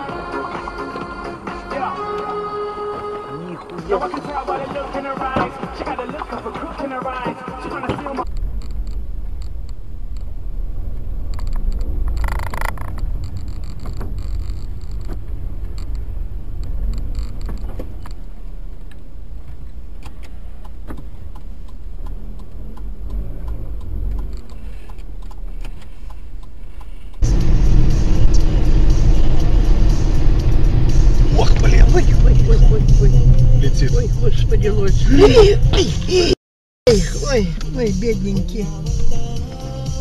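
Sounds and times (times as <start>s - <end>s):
car engine and tyres rumbling: 0.0s - 40.0s
noisy burst: 8.2s - 20.0s, 27.2s - 36.1s.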